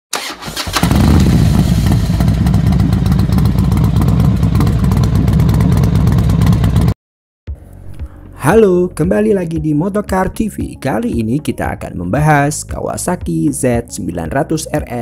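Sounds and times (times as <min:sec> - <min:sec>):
motorcycle engine running: 0:00.6 - 0:07.0.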